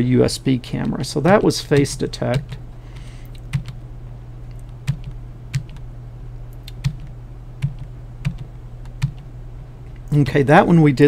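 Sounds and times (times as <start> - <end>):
steady low hum: 0.0 - 11.0
keyboard keystrokes clicking: 1.7 - 3.8, 4.5 - 5.8, 6.6 - 9.3.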